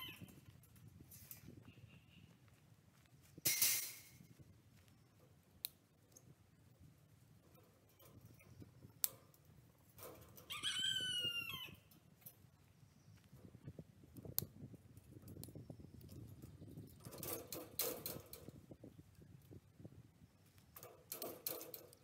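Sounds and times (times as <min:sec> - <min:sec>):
metal clicks from wire fence: 0:03.5 - 0:04.2, 0:07.4 - 0:10.6, 0:14.2 - 0:18.6, 0:20.8 - 0:22.0
rooster crowing: 0:10.5 - 0:11.8
fencing clattering: 0:16.1 - 0:18.6, 0:20.8 - 0:22.0.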